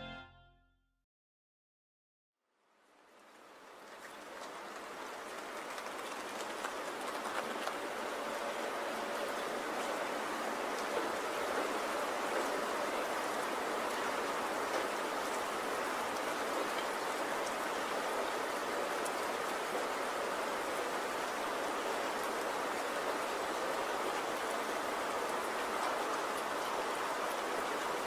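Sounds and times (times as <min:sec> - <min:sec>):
steady rain falling: 0:02.6 - 0:28.0
raindrop ticks: 0:03.8 - 0:07.9.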